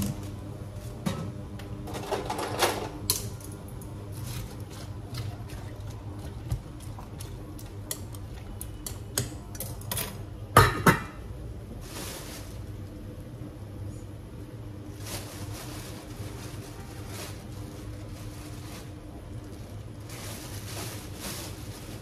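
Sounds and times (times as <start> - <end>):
plastic bags rustling: 11.7 - 12.9, 14.8 - 22.0.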